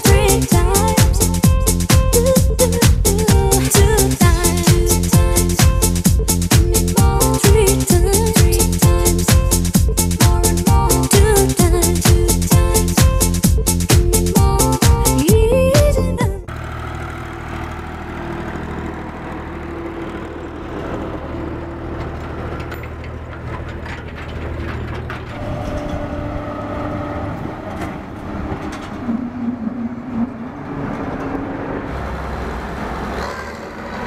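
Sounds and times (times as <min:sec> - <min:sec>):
tractor diesel engine running: 0:00.0 - 0:34.0
combine harvester engine: 0:16.5 - 0:34.0.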